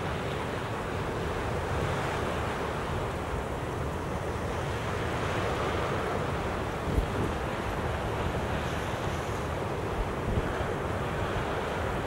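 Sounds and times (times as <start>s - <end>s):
waves breaking on beach: 0.0s - 12.0s
wind gusting over microphone: 5.4s - 12.0s.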